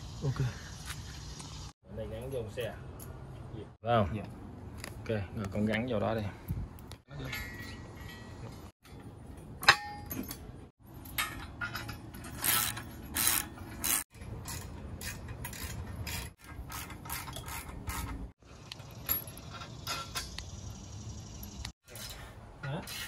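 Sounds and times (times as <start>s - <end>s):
metal bolts clinking: 7.2s - 20.7s
ratchet wrench clicking: 12.4s - 18.2s.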